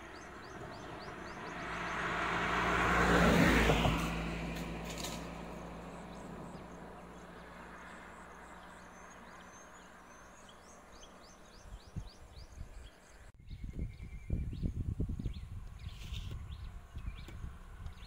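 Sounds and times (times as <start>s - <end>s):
bird chirping: 0.0s - 2.2s, 5.9s - 18.0s
vehicle engine driving off: 0.0s - 11.3s.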